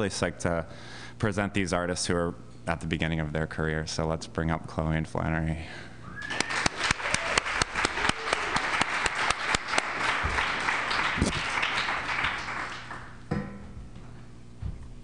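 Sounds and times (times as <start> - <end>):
audience applauding: 6.2 - 13.2.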